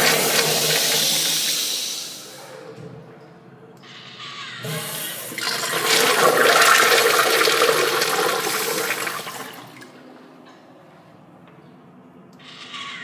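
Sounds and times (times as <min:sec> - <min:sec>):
urinal flushing: 0:00.0 - 0:02.6, 0:04.6 - 0:10.1.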